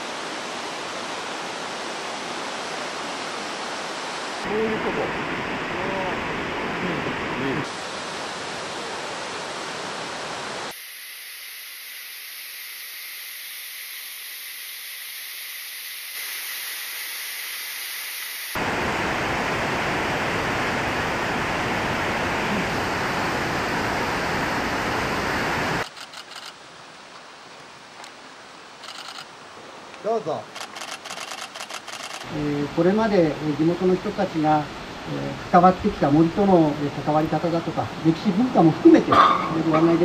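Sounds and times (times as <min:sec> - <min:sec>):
waterfall rushing: 0:00.0 - 0:10.7, 0:18.5 - 0:25.9.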